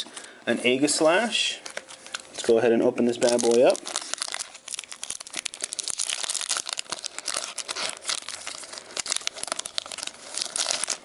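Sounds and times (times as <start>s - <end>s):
foil wrapper tearing and crinkling: 3.1s - 11.0s.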